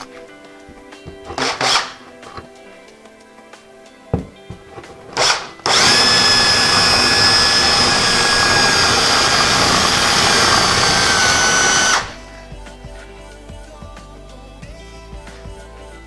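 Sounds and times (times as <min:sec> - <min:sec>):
cordless drill whining: 0:01.3 - 0:02.5, 0:04.8 - 0:12.2.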